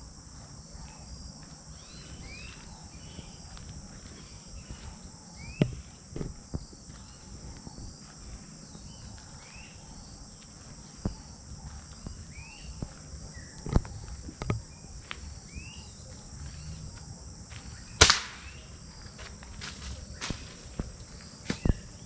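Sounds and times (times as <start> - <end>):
insect buzz: 0.0 - 22.0
bird chirps: 0.8 - 6.0, 6.6 - 16.8, 20.2 - 22.0
air rifle shot: 18.0 - 18.7.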